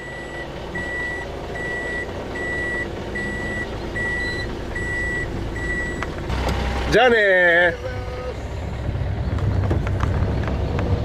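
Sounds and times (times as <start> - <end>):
reverse warning beeper: 0.0 - 6.0
engine idling hum: 0.0 - 11.0.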